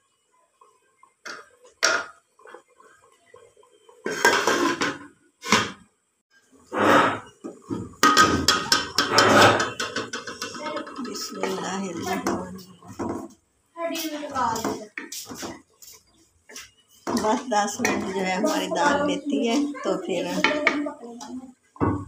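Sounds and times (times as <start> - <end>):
cooking pot knocking and rattling: 1.2 - 2.6, 4.0 - 5.8, 6.9 - 13.4, 17.0 - 19.0.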